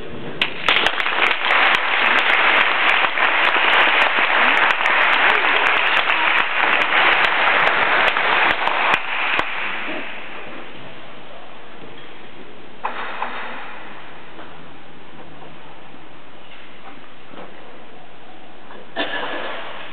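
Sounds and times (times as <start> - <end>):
audience applauding: 0.4 - 10.7.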